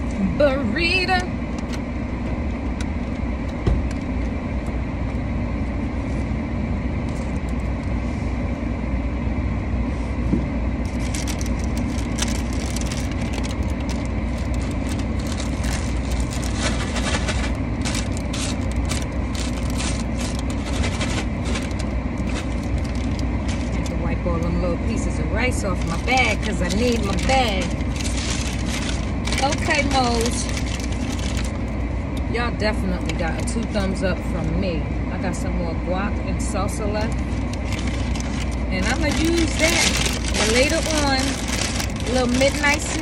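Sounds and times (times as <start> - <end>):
car cabin hum: 0.0 - 43.0
foil and paper bag crinkling: 10.8 - 31.9, 32.7 - 34.0, 37.0 - 43.0.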